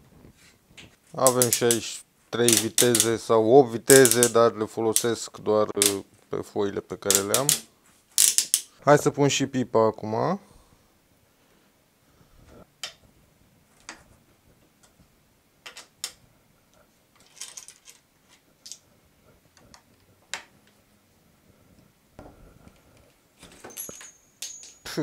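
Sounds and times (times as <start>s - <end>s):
small metal parts clicking: 1.2s - 3.2s, 3.9s - 5.1s, 7.1s - 8.7s, 17.2s - 18.8s, 23.4s - 25.0s.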